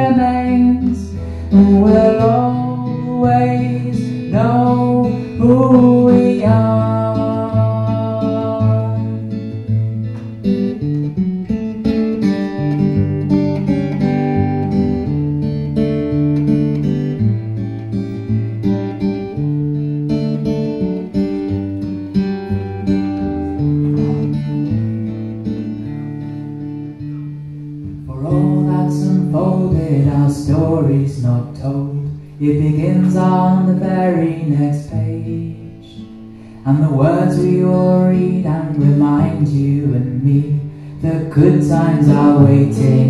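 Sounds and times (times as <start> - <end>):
man singing: 0.0 - 9.6, 28.0 - 43.0
acoustic guitar playing: 0.0 - 43.0.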